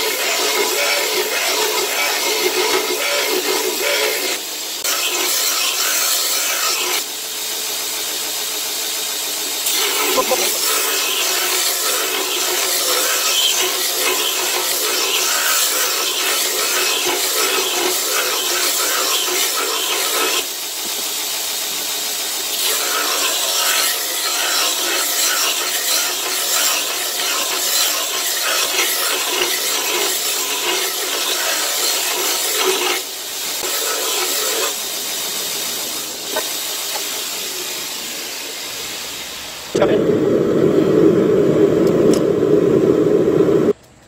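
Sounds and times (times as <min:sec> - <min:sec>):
belt grinder grinding knife blade: 0:00.0 - 0:07.1, 0:09.6 - 0:20.5, 0:22.5 - 0:34.9.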